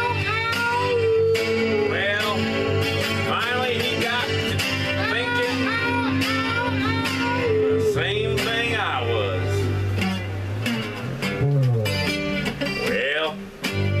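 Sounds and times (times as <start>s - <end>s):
person singing: 0.0s - 9.7s
acoustic guitar strumming: 0.0s - 14.0s.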